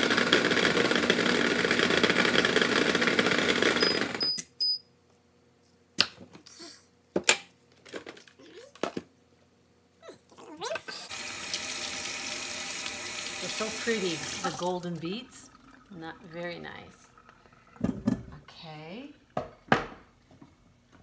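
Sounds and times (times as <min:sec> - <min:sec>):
food processor running: 0:00.0 - 0:04.2, 0:11.1 - 0:14.7.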